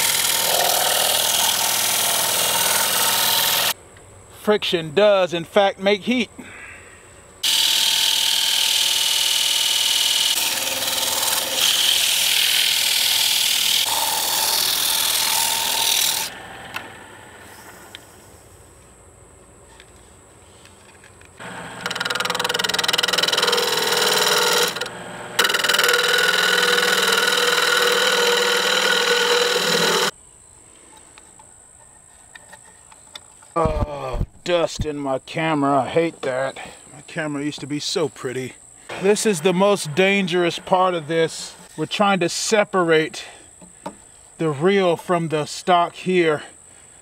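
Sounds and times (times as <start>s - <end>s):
sandpaper rasping on spinning wood: 0.0s - 3.7s, 7.5s - 16.3s, 21.8s - 30.1s.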